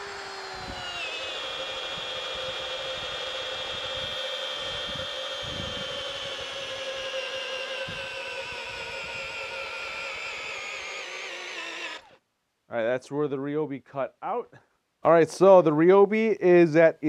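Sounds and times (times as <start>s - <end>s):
drill motor whining: 0.0s - 12.2s.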